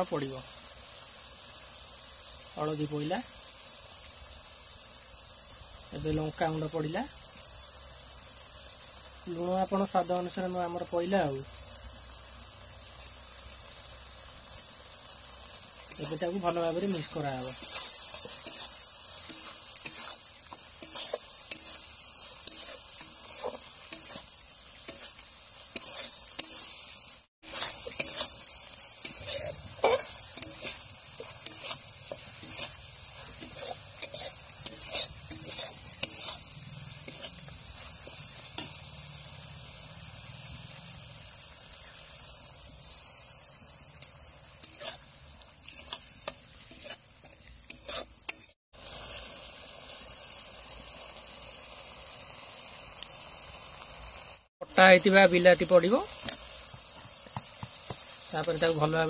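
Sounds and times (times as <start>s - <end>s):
paste sizzling in hot oil: 0.0s - 59.0s
metal spatula scraping: 15.7s - 41.0s, 42.6s - 48.6s.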